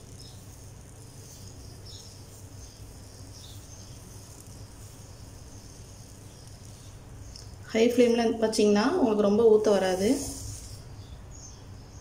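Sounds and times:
batter sizzling on hot pan: 0.0s - 7.7s.

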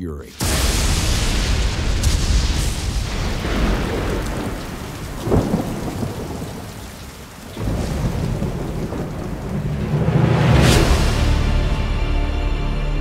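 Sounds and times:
steady rain: 0.3s - 11.6s
sharp thunderclap: 0.4s - 11.8s
thunder rumbling: 0.4s - 11.8s.

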